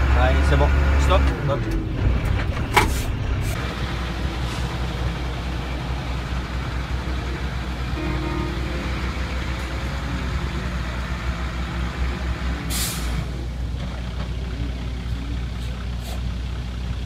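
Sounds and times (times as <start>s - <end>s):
truck diesel engine rumble: 0.0s - 17.0s
air brake hiss: 12.7s - 13.2s.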